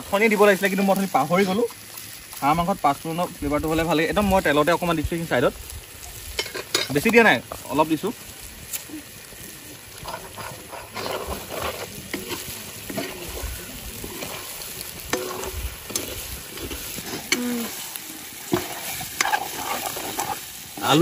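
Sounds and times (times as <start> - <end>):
meat and potatoes sizzling in oil: 0.0 - 21.0
metal spatula scraping a wok: 10.0 - 20.6.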